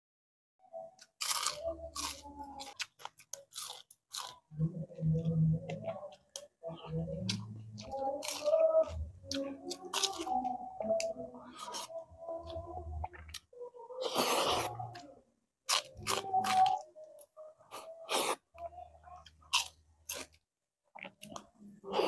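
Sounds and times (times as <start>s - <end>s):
crunching fried fish: 1.0s - 4.5s
wet chewing: 1.0s - 15.0s, 15.7s - 18.4s.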